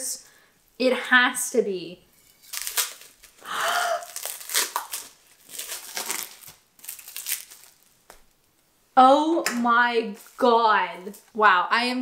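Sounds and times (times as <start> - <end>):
plastic wrapping crinkling and tearing: 2.2 - 8.6, 10.1 - 11.4.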